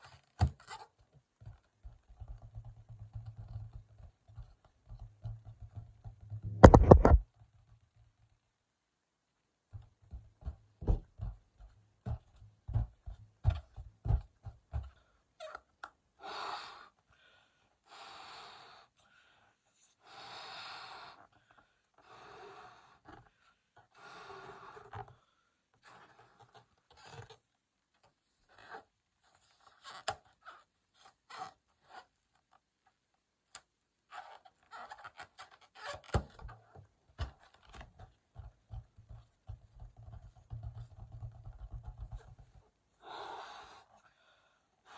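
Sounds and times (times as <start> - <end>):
rubbery balloon squeaks: 0.0 - 1.0, 6.5 - 7.2, 15.4 - 15.8, 25.8 - 27.4, 28.5 - 32.2, 34.1 - 37.8
breaths blowing up a balloon: 43.0 - 44.9.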